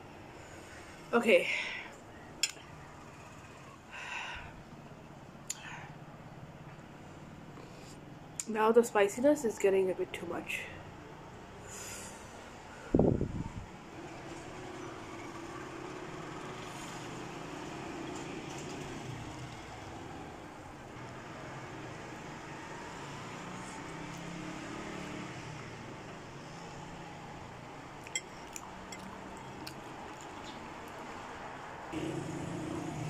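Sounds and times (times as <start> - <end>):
noodles being eaten and chewed: 27.9 - 31.1.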